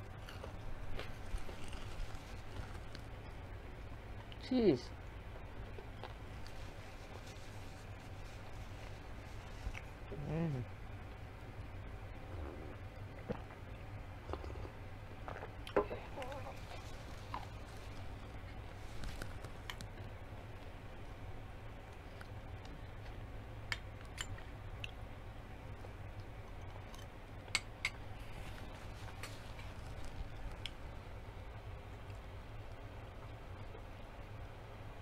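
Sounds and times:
faint low hum: 0.0s - 35.0s
person chewing: 0.1s - 3.1s, 5.7s - 10.1s, 13.2s - 20.1s.

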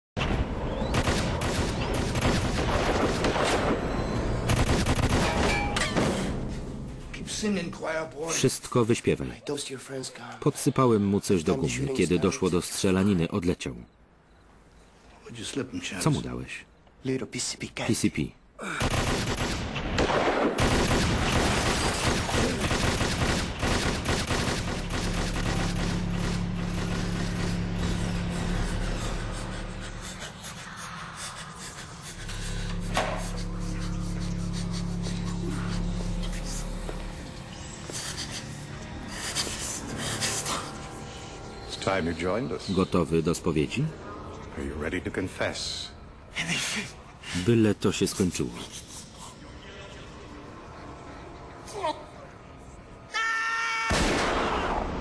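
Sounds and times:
gunfire: 0.8s - 5.8s, 18.8s - 28.3s
low steady hum: 23.4s - 47.4s.

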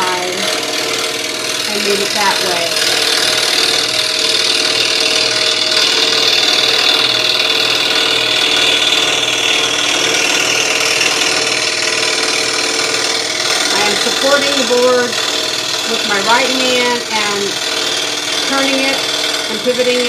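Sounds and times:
motor hum: 0.0s - 20.0s
scroll saw cutting wood: 0.0s - 20.0s.

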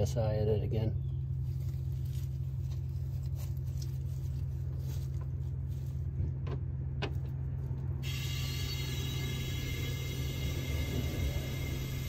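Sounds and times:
air compressor humming: 8.0s - 12.0s.

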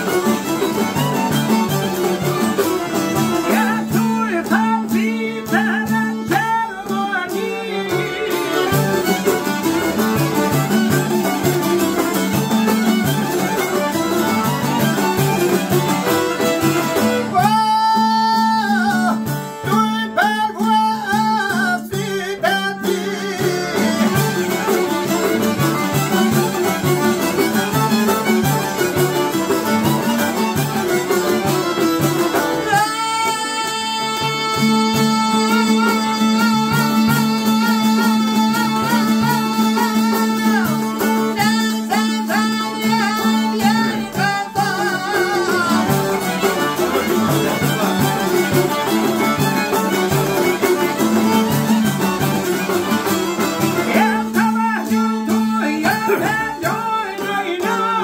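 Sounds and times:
plucked lutes: 0.0s - 58.0s
man singing long held notes: 3.4s - 8.6s, 17.2s - 24.0s, 32.6s - 46.1s, 53.8s - 58.0s.

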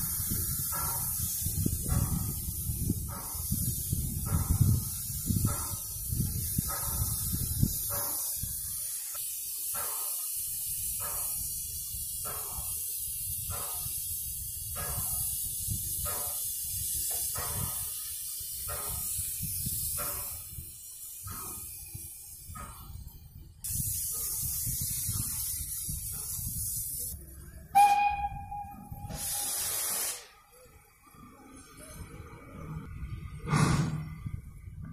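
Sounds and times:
steam locomotive chugging: 0.0s - 22.9s
steam hissing: 0.0s - 27.2s, 27.8s - 30.5s
steam locomotive whistle: 27.7s - 30.1s.

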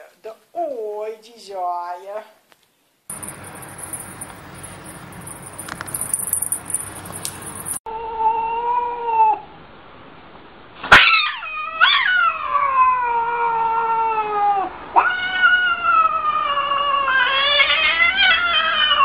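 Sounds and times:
cat yowling: 7.9s - 9.4s, 10.9s - 19.0s.

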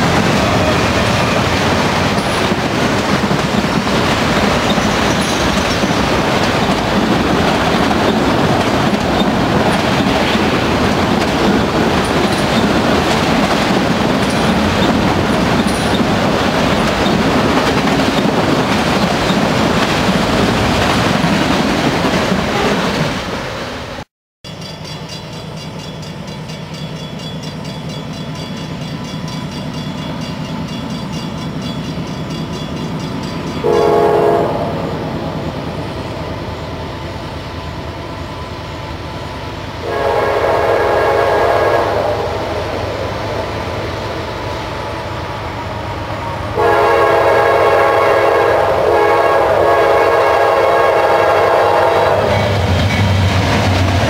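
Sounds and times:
wheels clacking over rail joints: 0.0s - 23.1s
freight train wheels on rails: 0.0s - 54.0s.

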